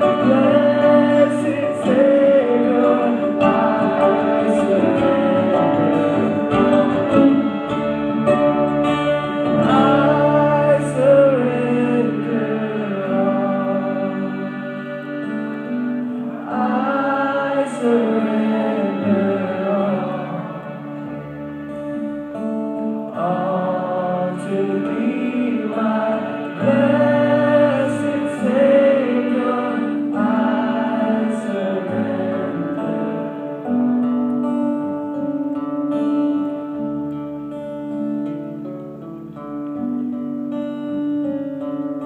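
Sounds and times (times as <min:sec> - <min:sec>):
person singing worship song: 0:00.0 - 0:21.7, 0:23.0 - 0:34.7
small stringed instrument: 0:00.0 - 0:40.3
strummed acoustic guitar: 0:00.0 - 0:42.0.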